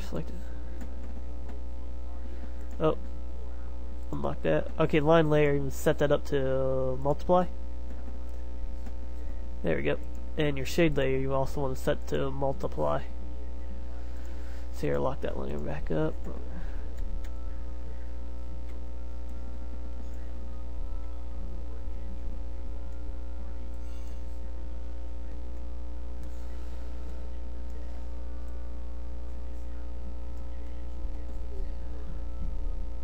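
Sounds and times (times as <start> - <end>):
electrical hum: 0.0 - 33.0.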